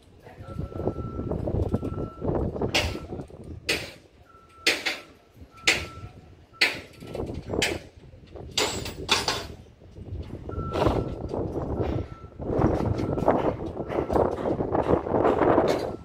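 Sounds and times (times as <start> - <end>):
low engine rumble: 0.0 - 16.0
faint beep tone: 0.4 - 3.2, 4.2 - 7.4.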